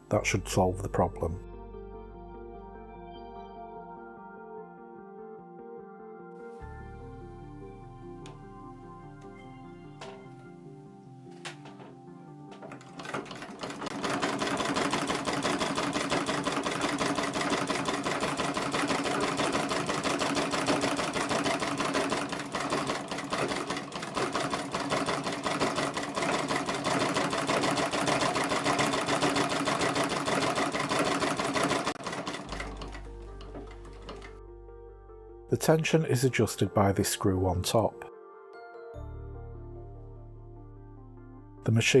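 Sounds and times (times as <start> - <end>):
treadle sewing machine clattering: 12.5 - 34.3.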